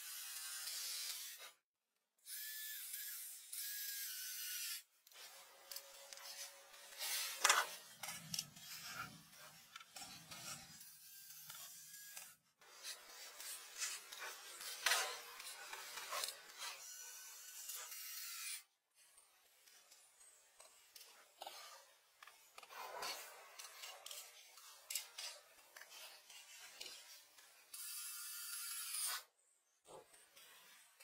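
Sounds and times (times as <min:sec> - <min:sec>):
scraping and rubbing: 0:05.1 - 0:10.8, 0:12.6 - 0:16.8, 0:20.6 - 0:27.4.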